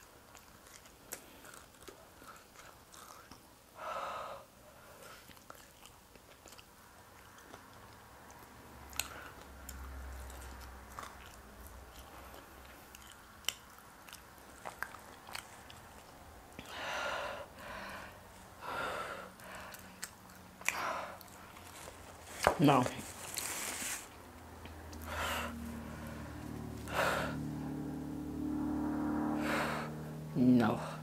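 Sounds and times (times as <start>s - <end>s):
close chewing: 0.0s - 3.8s, 4.9s - 16.7s, 19.4s - 26.6s
loud breaths: 3.8s - 5.2s, 16.6s - 20.0s, 20.7s - 22.0s, 24.9s - 27.6s.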